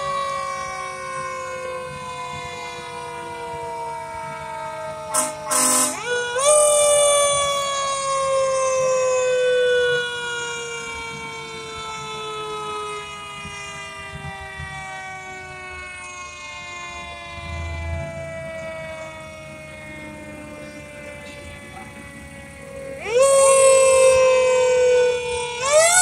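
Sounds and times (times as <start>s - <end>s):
mechanical siren winding down: 0.0s - 26.0s
low rumble of passing trucks: 7.0s - 23.0s.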